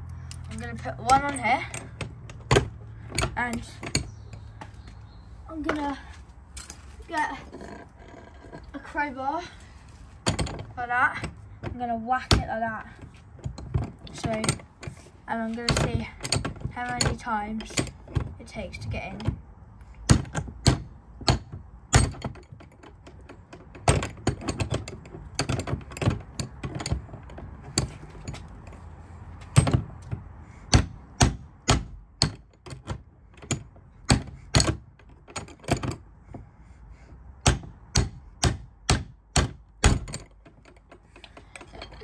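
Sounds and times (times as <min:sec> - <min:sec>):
padlock clanking against metal hasp: 0:19.9 - 0:28.8, 0:30.7 - 0:36.1, 0:37.4 - 0:42.0.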